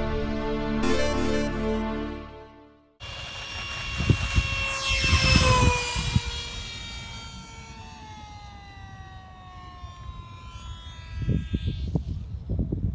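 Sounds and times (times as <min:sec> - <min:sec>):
model airplane high whine: 0:03.0 - 0:12.9
wind buffeting microphone: 0:03.1 - 0:07.6, 0:11.0 - 0:12.9.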